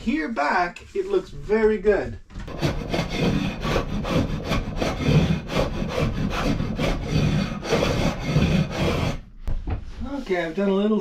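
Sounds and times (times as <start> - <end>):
hand plane shaving wood: 2.5 - 9.2.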